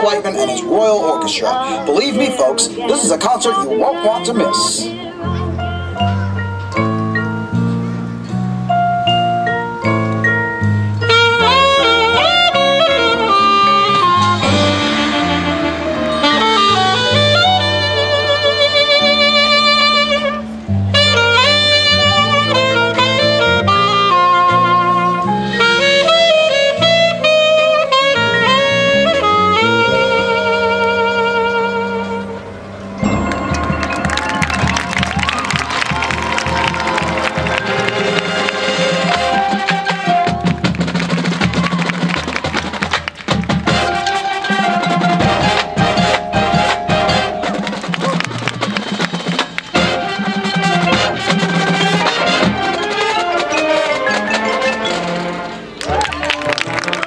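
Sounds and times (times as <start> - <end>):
marching band winds and brass: 0.0 - 57.0
mallet percussion: 5.2 - 13.2, 32.6 - 57.0
marching drums: 33.0 - 54.7.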